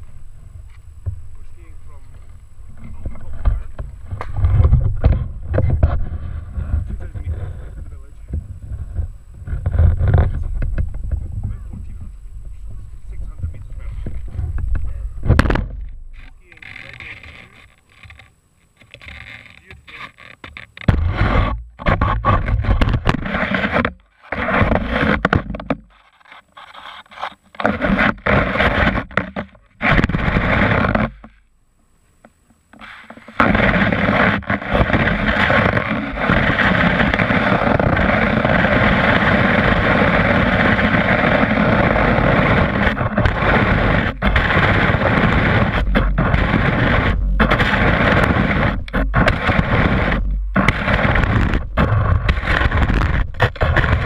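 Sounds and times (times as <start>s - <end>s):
skis scraping over snow: 21.1s - 25.3s, 26.6s - 29.1s, 29.8s - 31.2s, 32.8s - 54.0s.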